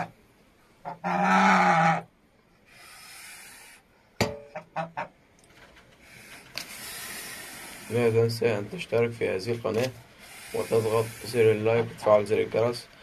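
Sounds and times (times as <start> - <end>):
goose honking: 0.8 - 2.1
goose breathy hiss: 2.6 - 3.9, 6.0 - 8.5, 10.1 - 11.8.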